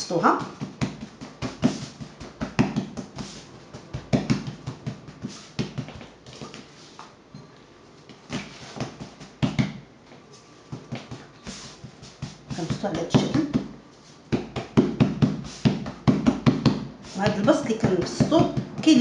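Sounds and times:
hands patting dough on a board: 0.2 - 7.1, 8.2 - 9.9, 10.7 - 19.0.

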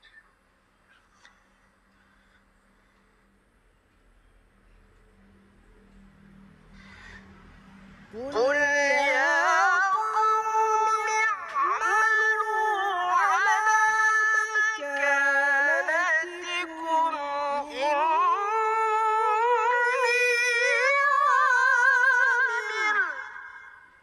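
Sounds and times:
young man chanting melodically: 8.1 - 24.0.

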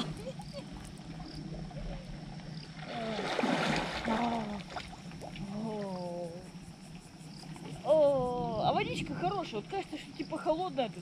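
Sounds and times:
lake water splashing: 0.0 - 6.5.

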